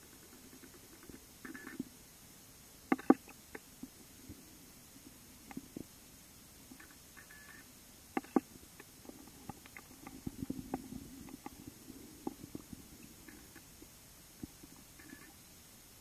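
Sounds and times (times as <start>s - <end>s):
soft underwater clicks and knocks: 2.9s - 4.0s, 5.4s - 5.9s, 8.2s - 11.6s, 12.2s - 15.3s.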